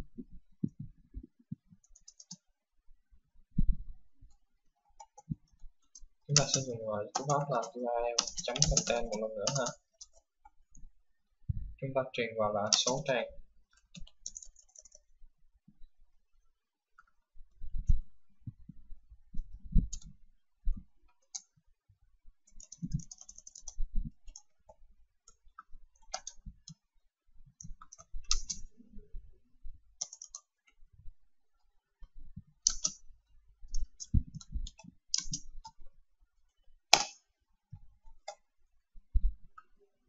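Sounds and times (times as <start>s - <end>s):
keyboard typing: 1.8s - 2.5s, 5.0s - 10.9s, 12.6s - 15.1s, 19.8s - 20.2s, 22.5s - 26.8s, 27.6s - 29.0s, 30.0s - 30.7s, 32.6s - 33.0s, 33.7s - 35.8s, 36.9s - 37.2s.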